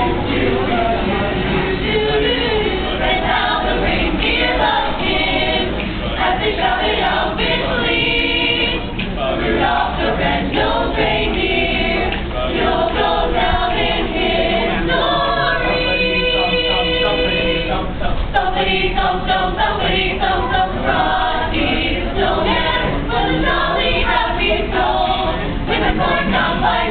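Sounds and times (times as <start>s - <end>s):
choir singing in harmony: 0.0s - 26.9s.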